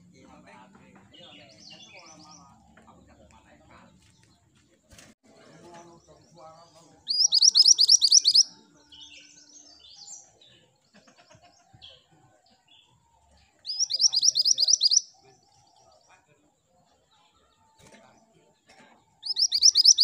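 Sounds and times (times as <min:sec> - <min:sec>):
soft bird chirps: 0:05.6 - 0:11.0, 0:12.7 - 0:16.3, 0:19.2 - 0:20.0
bird singing high sharp notes: 0:07.1 - 0:10.1, 0:13.7 - 0:15.1, 0:19.2 - 0:20.0.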